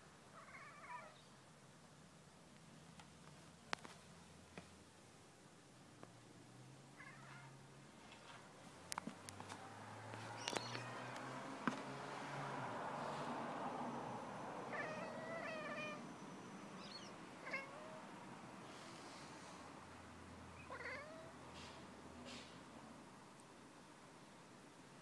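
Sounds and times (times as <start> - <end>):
cat chirping meows: 0.4 - 1.2, 7.0 - 7.6, 10.3 - 11.1, 14.7 - 16.0, 16.8 - 18.0, 20.6 - 21.4.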